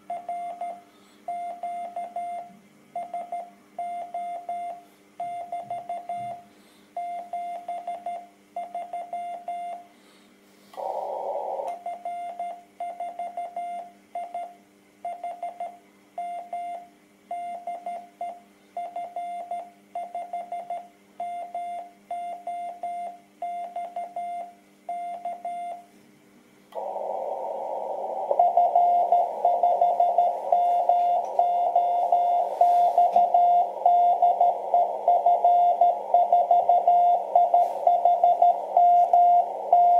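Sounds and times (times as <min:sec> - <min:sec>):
radio band hiss: 0:10.7 - 0:11.7, 0:26.8 - 0:39.9
morse code tone: 0:26.8 - 0:39.9.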